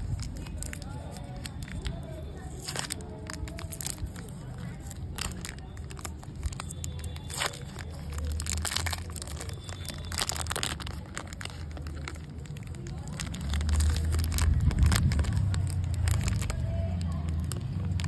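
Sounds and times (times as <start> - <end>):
chocolate bar breaking: 0.0 - 18.0
foil wrapper crinkling and tearing: 0.0 - 18.0
low rumble: 13.3 - 18.0.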